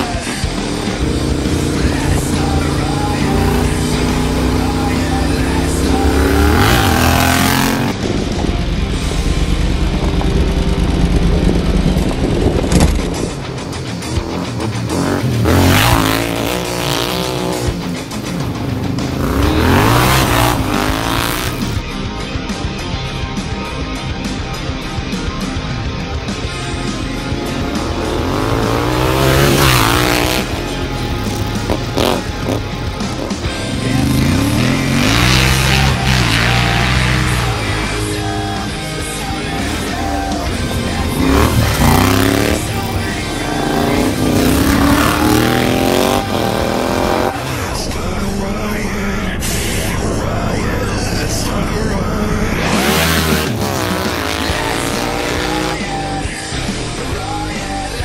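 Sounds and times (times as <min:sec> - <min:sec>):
motorcycle engine passing: 0:00.0 - 0:08.3, 0:08.9 - 0:21.8, 0:26.4 - 0:56.4
rough low engine rumble: 0:00.0 - 0:58.0
motorcycle engine revving past: 0:09.3 - 0:21.8.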